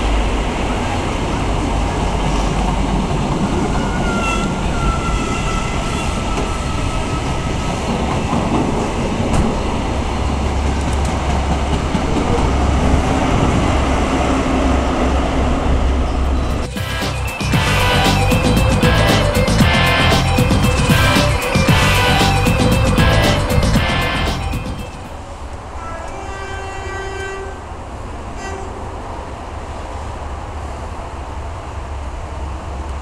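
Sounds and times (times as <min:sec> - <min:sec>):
train wheels rumbling on rails: 0:00.0 - 0:33.0
locomotive deep rumble: 0:07.4 - 0:25.4.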